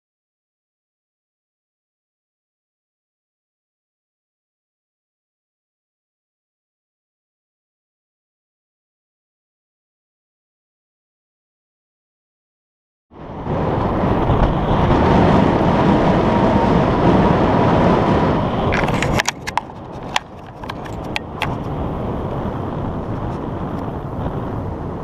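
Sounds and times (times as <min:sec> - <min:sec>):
loud rushing noise: 0:13.2 - 0:20.1.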